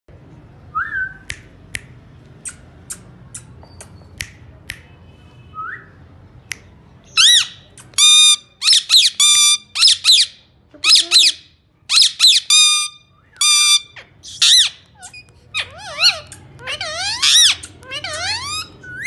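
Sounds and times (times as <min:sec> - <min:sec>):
parrot squawking: 0:07.2 - 0:19.0.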